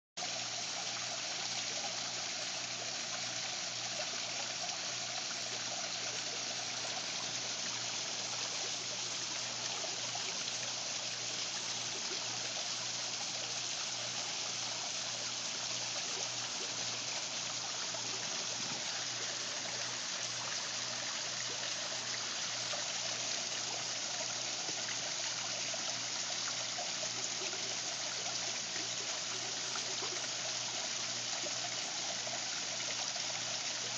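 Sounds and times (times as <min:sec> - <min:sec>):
water splashing down a waterfall: 0:00.2 - 0:33.9.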